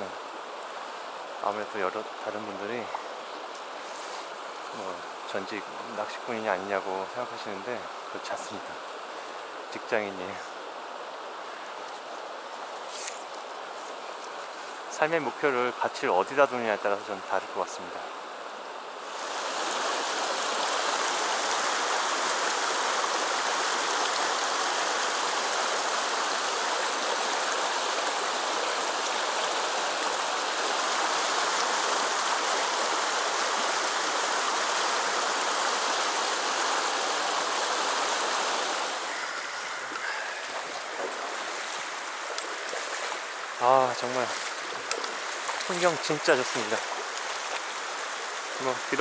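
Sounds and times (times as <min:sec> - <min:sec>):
slower water flowing: 0:00.0 - 0:49.0
river rushing over rocks: 0:18.1 - 0:49.0.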